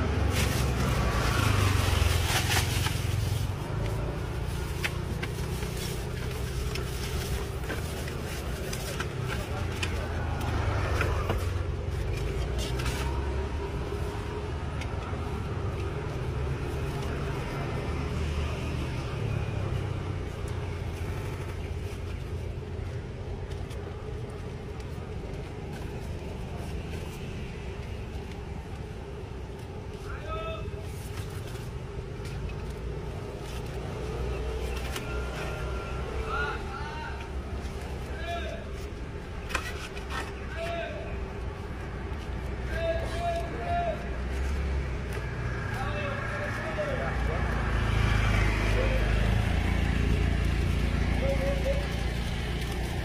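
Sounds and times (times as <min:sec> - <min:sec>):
plastic bags rustling: 0:00.0 - 0:13.9
road traffic rumble: 0:00.0 - 0:53.0.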